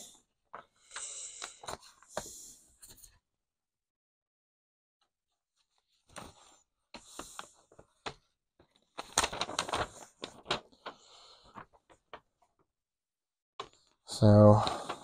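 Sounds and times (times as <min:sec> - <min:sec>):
paper rustling and crinkling: 0:05.7 - 0:12.6, 0:14.5 - 0:15.0.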